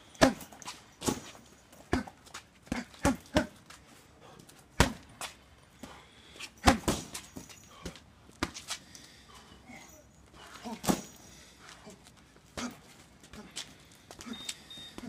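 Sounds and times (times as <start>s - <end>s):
strikes thudding into punching bag: 0.2s - 2.1s, 6.6s - 7.5s, 10.8s - 11.2s
person grunting: 1.9s - 3.6s.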